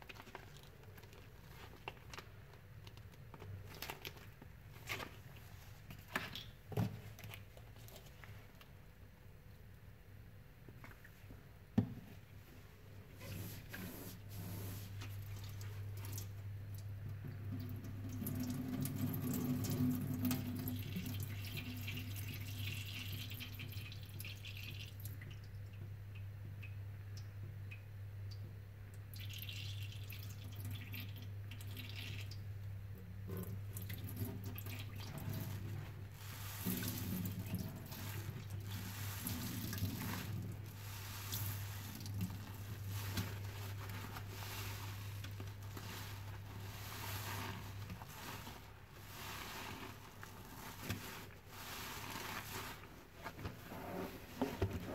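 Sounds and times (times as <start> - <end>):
sponge squelching: 13.2 - 16.3, 33.9 - 54.9
water dripping: 15.0 - 32.8, 33.4 - 35.7.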